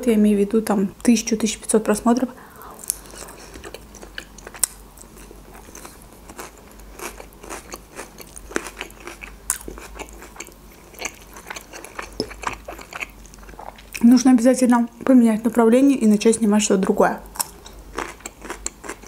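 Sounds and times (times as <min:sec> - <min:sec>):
person chewing food: 0:02.5 - 0:14.0, 0:17.3 - 0:19.0.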